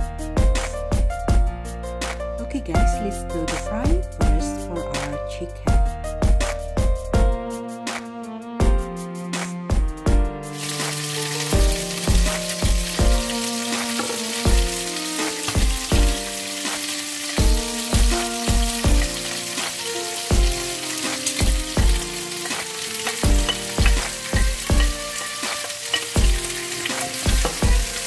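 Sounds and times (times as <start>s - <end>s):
background music with steady beat: 0.0s - 28.0s
chicken sizzling in frying pan: 10.5s - 28.0s.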